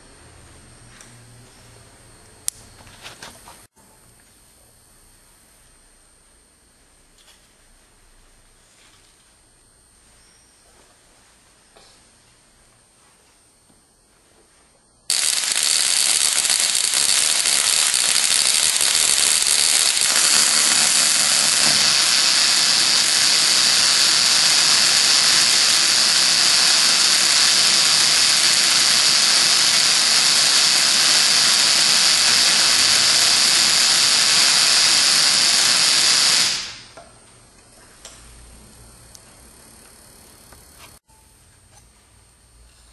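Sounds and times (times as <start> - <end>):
spark discharge hissing: 15.1 - 37.0.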